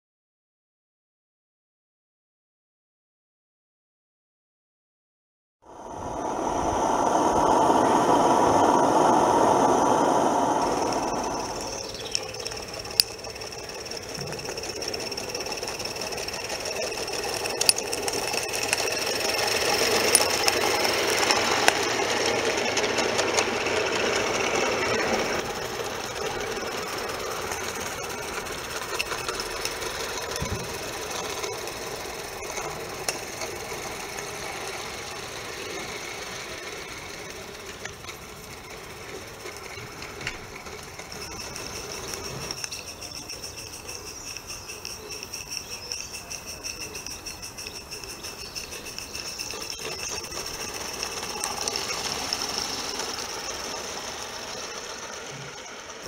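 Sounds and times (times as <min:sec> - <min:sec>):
steam engine mechanical beat: 0:09.1 - 0:56.0
sharp clicks: 0:10.4 - 0:35.1, 0:36.4 - 0:54.7.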